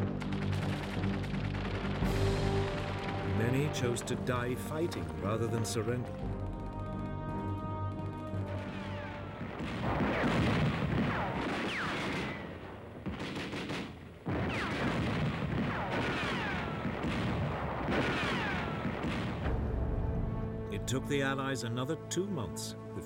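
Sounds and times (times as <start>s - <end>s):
gunfire: 0.0s - 19.6s
explosions: 8.4s - 20.0s.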